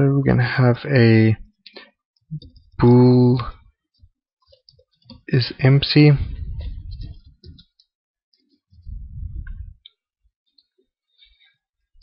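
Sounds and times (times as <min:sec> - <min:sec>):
muffled low microphone noise: 0:05.3 - 0:07.6, 0:08.7 - 0:09.9.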